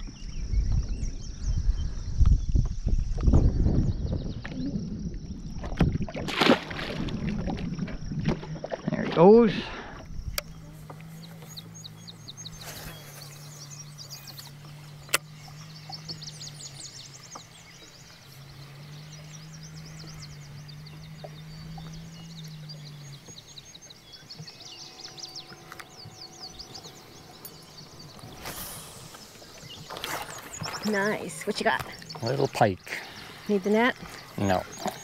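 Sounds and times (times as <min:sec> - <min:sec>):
birds chirping in trills: 0:09.2 - 0:35.0
steady low hum: 0:09.5 - 0:35.0.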